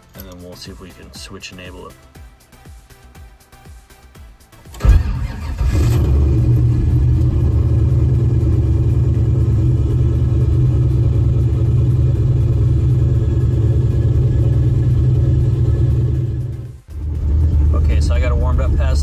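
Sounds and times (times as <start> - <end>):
engine starter cranking: 4.7 - 7.2.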